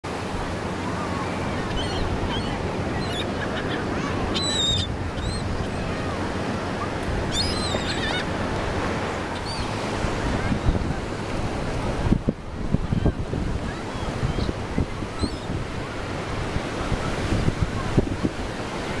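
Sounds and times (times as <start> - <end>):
surf washing: 0.0 - 19.0
wind buffeting the microphone: 0.3 - 19.0
gulls giving short high calls: 1.6 - 6.2, 6.8 - 8.2.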